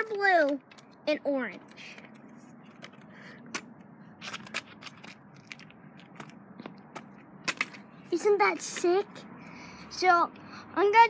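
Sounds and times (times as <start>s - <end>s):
scooter parts clicking and knocking: 0.0s - 7.9s.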